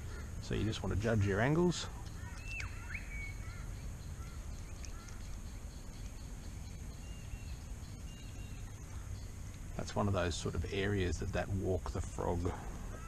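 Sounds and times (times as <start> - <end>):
steady low rumble: 0.0 - 13.0
faint high bird calls: 1.4 - 10.9, 12.2 - 13.0.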